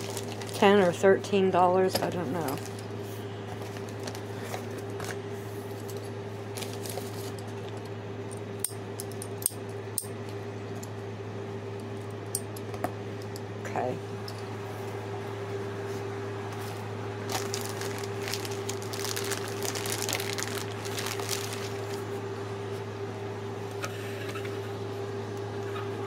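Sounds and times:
plastic and paper crinkling: 0.0s - 0.9s, 3.5s - 5.2s, 6.5s - 7.4s, 17.2s - 22.1s
low steady hum: 0.0s - 26.0s.

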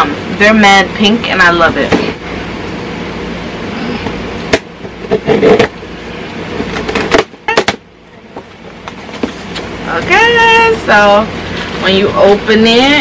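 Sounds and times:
cardboard box rustling and scraping: 8.8s - 9.7s.

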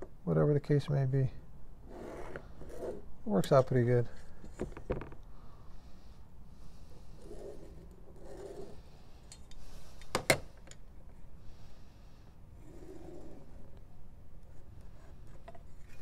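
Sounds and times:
metal square sliding over leather: 1.9s - 3.0s, 6.9s - 8.9s, 12.6s - 13.6s.

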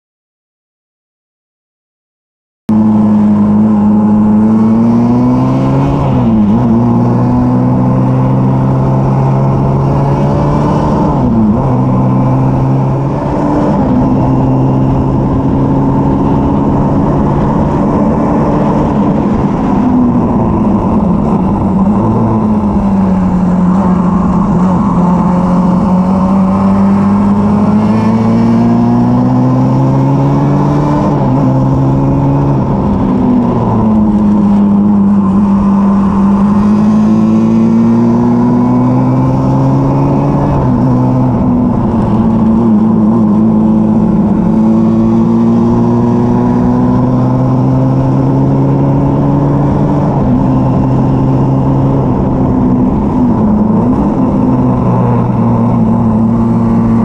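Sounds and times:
race car engine at speed: 2.7s - 57.0s
wind rush over microphone: 3.6s - 57.0s.

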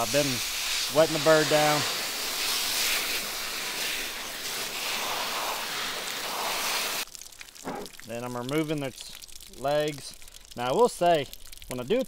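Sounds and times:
hose nozzle spraying water: 0.0s - 8.9s.

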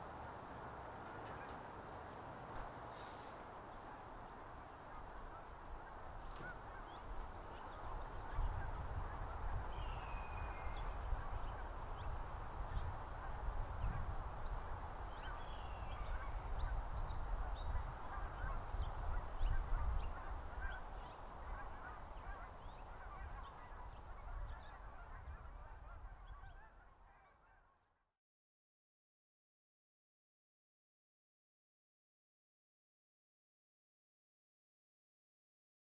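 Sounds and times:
geese honking: 2.9s - 11.8s, 14.6s - 27.8s.

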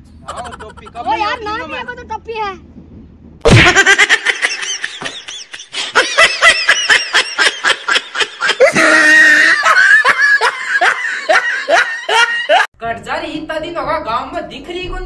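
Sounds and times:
high-pitched laughter: 0.2s - 1.0s, 3.5s - 12.7s.

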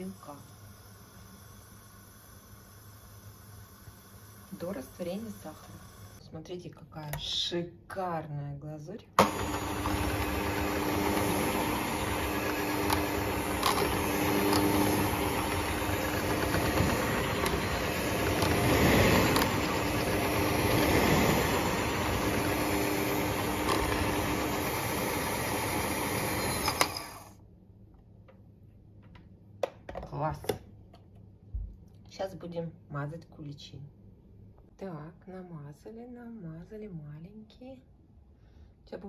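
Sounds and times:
electric hand mixer running: 9.2s - 27.4s.

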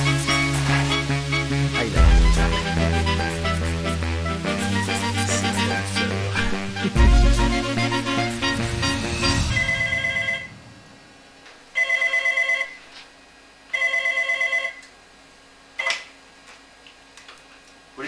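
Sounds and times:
soundtrack music: 0.0s - 10.8s
desk telephone ringing: 9.5s - 10.5s, 11.8s - 12.8s, 13.7s - 14.8s.

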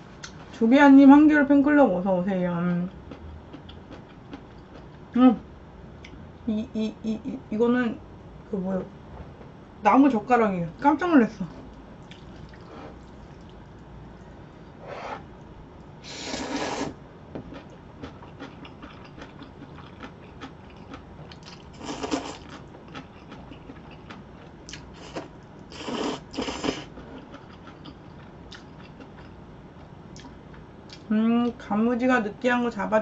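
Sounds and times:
noodle slurping: 16.1s - 17.0s, 25.0s - 26.9s.

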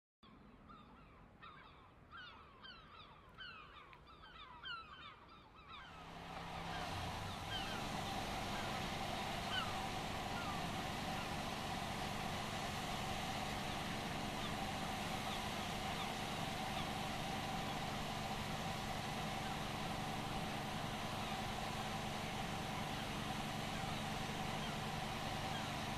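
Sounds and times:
birds calling: 0.2s - 25.9s
engine hum: 5.7s - 25.9s.

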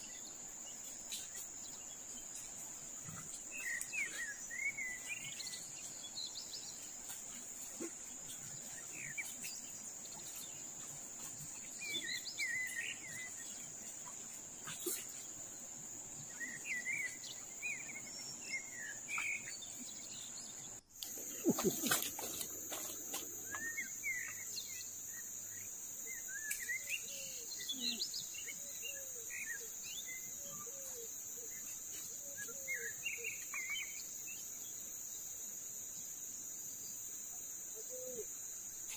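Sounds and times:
birds chirping: 0.0s - 30.8s
insects droning: 0.0s - 38.9s.

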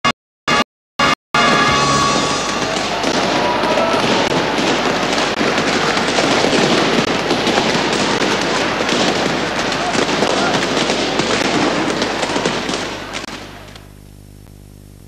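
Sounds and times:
music: 1.4s - 4.1s
party crowd din: 1.4s - 13.8s
crackling pops: 2.5s - 14.8s.

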